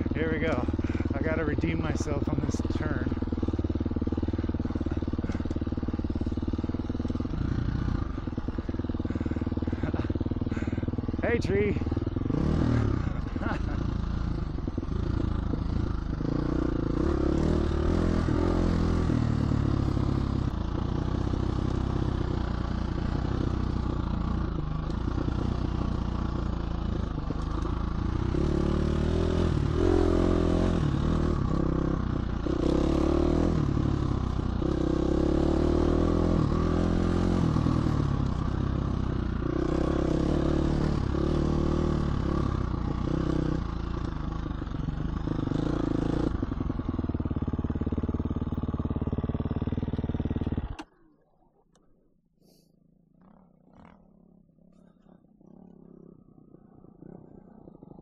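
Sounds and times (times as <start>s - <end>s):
dirt bike engine revving: 0.0s - 50.8s.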